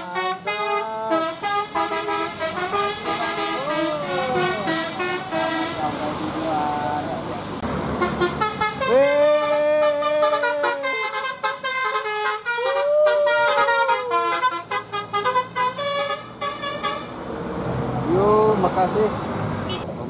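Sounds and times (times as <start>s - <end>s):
bus musical horn playing tune: 0.0s - 6.0s, 8.0s - 17.2s.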